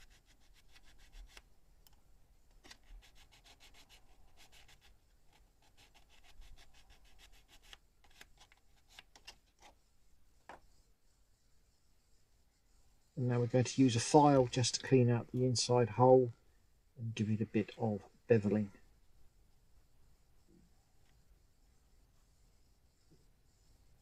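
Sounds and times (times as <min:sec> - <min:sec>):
needle rubbed on sandpaper: 0:00.0 - 0:01.4, 0:02.6 - 0:15.3, 0:19.7 - 0:24.0.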